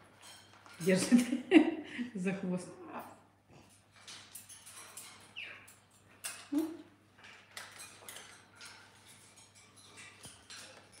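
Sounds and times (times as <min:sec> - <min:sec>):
parrot claws clinking on cage bars: 0:00.0 - 0:01.5, 0:03.0 - 0:11.0
parrot chirp: 0:05.2 - 0:05.8.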